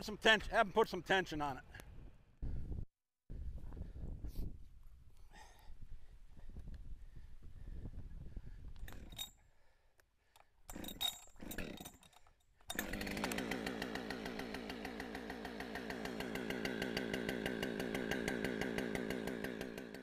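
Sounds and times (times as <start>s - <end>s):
chainsaw running: 8.9s - 9.3s, 10.7s - 20.0s.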